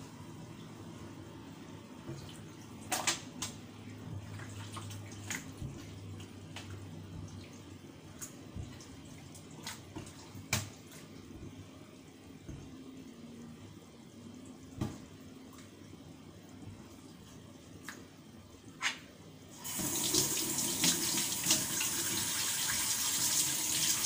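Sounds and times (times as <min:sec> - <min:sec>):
running water splashing: 0:03.9 - 0:11.4, 0:19.6 - 0:24.0.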